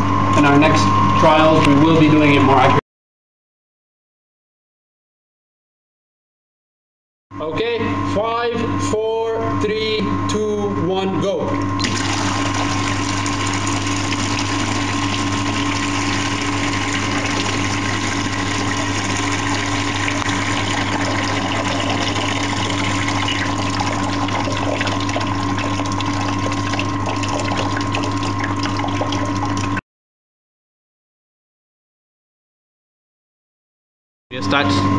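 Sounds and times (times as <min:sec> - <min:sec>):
steady hum: 0:00.0 - 0:02.8, 0:07.4 - 0:29.8, 0:34.3 - 0:34.9
water jetting and splashing: 0:11.8 - 0:29.8.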